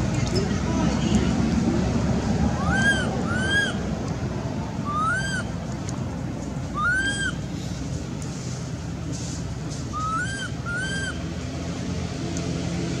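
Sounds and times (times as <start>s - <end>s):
baby monkey coo calls: 2.6s - 3.8s, 6.8s - 7.4s, 9.9s - 11.2s.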